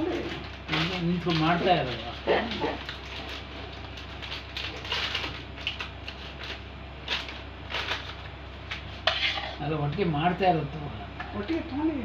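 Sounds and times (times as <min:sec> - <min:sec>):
plastic piping bag rustling: 0:00.0 - 0:09.1.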